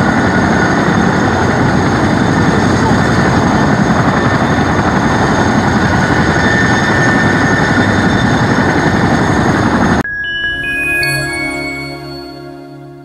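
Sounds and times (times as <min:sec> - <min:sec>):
helicopter turbine and rotor noise: 0:00.0 - 0:10.1
high turbine whine: 0:00.0 - 0:13.0
short chime: 0:10.0 - 0:13.0.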